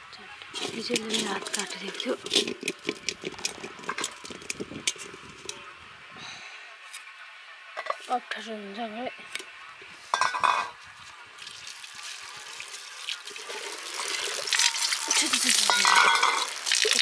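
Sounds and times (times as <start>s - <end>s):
water pouring: 11.4s - 17.0s.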